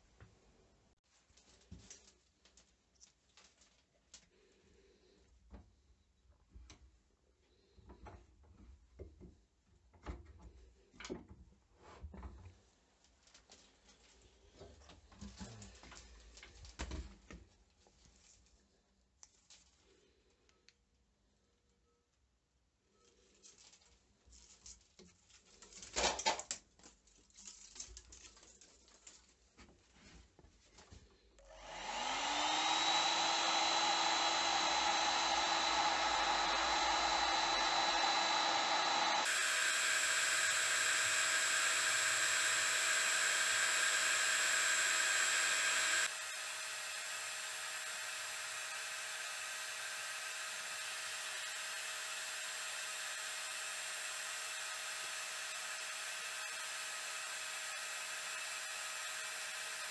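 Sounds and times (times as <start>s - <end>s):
heat gun blowing: 31.4s - 59.9s.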